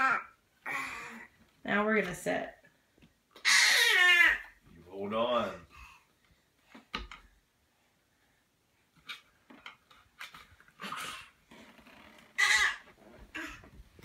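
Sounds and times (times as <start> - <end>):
toddler squealing and grunting: 0.0 - 1.3, 3.4 - 4.5, 12.4 - 13.6.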